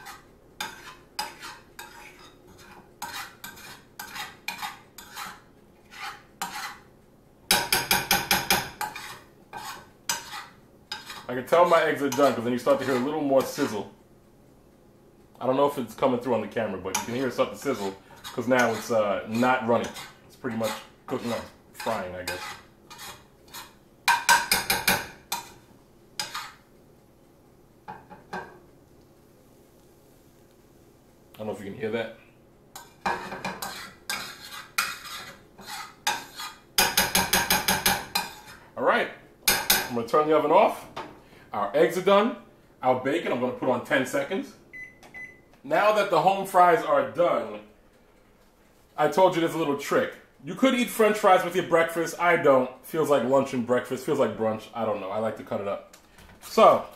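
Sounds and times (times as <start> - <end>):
utensil scraping frying pan: 0.0 - 13.9, 15.8 - 26.7, 32.7 - 38.8, 39.4 - 40.1.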